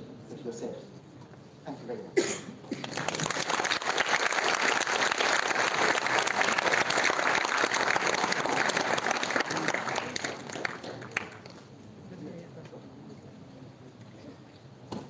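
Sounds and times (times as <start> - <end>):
audience applauding: 2.7 - 11.7.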